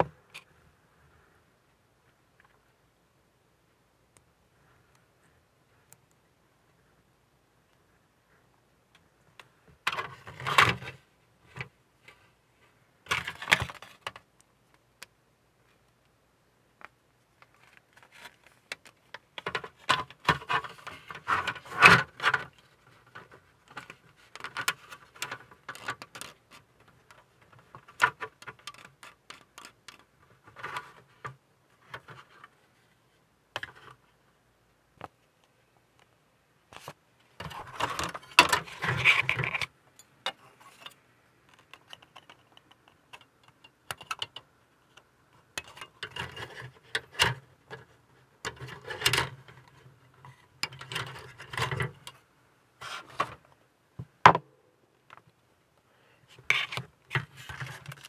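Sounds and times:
plastic parts clicking and scraping: 9.0 - 12.3, 13.0 - 14.3, 16.8 - 32.6, 33.5 - 34.1, 36.7 - 53.6, 56.3 - 58.0.

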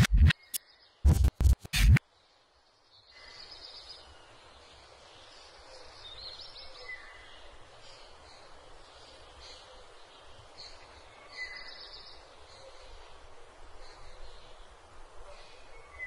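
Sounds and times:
stuttering digital glitch bursts: 0.0 - 2.0
room ambience hiss: 1.1 - 16.0
faint birds chirping: 2.0 - 16.0.

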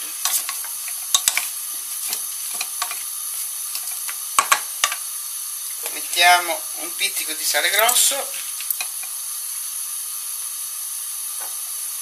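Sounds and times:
steady hiss: 0.0 - 12.0
wooden spoon knocking a pot: 0.3 - 1.5, 4.4 - 5.0.

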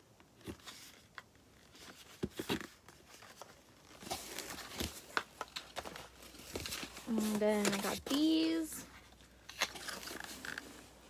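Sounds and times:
cardboard carton being handled: 0.4 - 10.8
packaging crinkling: 1.6 - 10.8.

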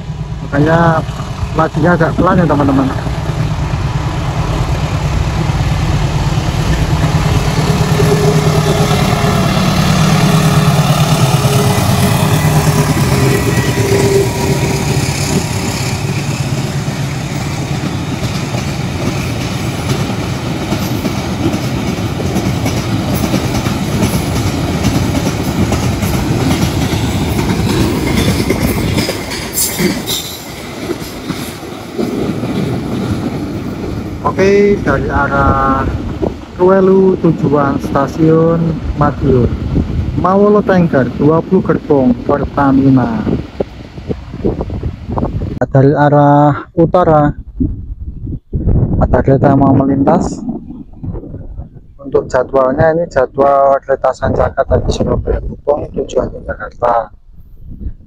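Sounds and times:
diesel locomotive engine drone: 0.0 - 45.9
train wheels squealing: 28.2 - 30.7.

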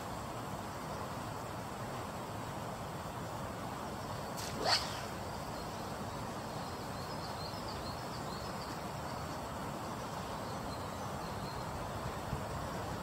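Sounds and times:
fishing rod whoosh: 4.4 - 5.3.

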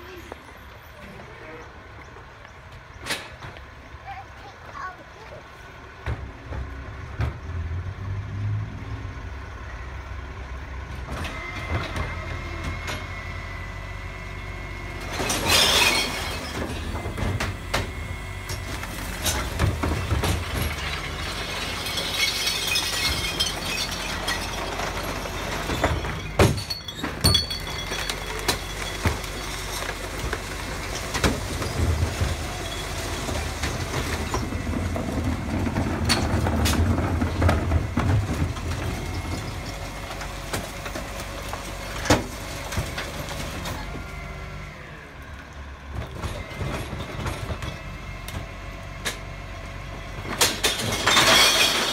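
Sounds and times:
garbage truck engine running: 0.0 - 51.9
compactor working: 10.6 - 51.9
bins knocking and clunking: 15.0 - 43.8.

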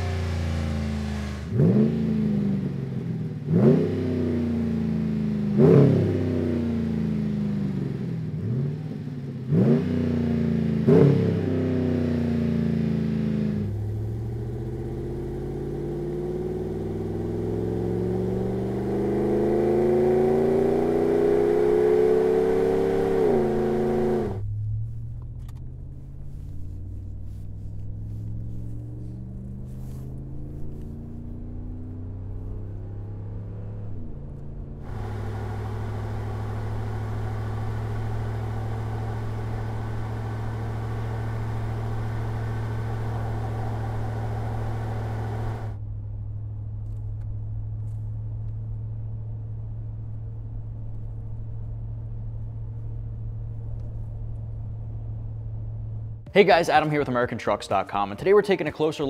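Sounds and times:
vee-eight engine revving: 0.0 - 24.5, 27.7 - 45.8
truck exhaust accelerating: 0.0 - 59.0
low engine drone inside cabin: 34.4 - 56.3.

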